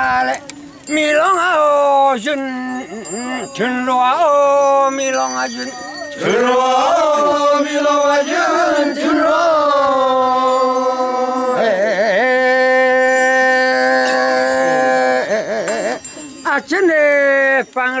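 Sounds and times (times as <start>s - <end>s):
men chanting in unison: 6.2s - 15.4s.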